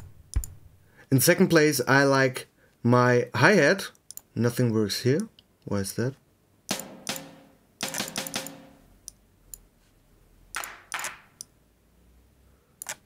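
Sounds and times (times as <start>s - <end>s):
brushed drum hits: 6.7s - 8.8s.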